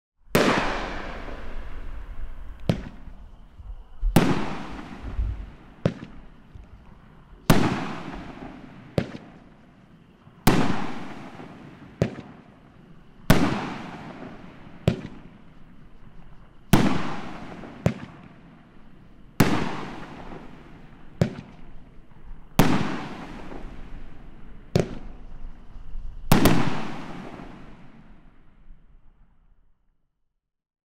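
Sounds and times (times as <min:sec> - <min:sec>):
firework aerial bursts: 0:00.4 - 0:18.6, 0:24.8 - 0:28.2.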